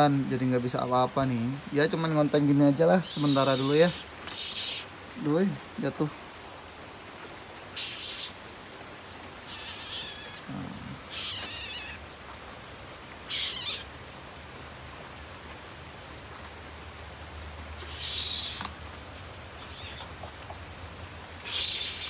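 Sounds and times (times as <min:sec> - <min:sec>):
bird harsh hissing calls: 0:03.0 - 0:05.0, 0:07.7 - 0:08.4, 0:09.4 - 0:12.0, 0:13.2 - 0:13.9, 0:17.8 - 0:18.8, 0:19.5 - 0:20.2, 0:21.4 - 0:22.0.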